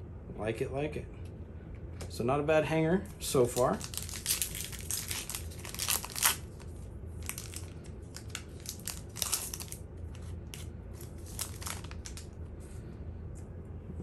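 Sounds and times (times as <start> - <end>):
foil wrapper crinkling and tearing: 3.2 - 12.4.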